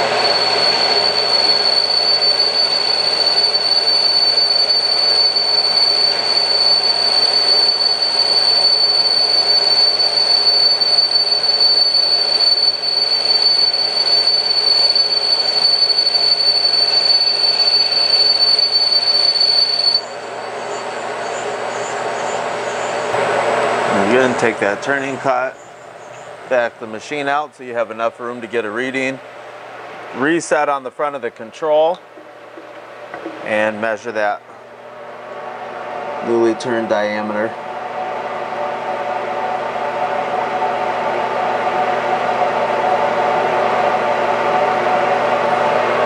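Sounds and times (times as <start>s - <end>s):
high-pitched cutting squeal: 0.0s - 23.2s
lathe spindle and cutting noise: 0.0s - 26.6s.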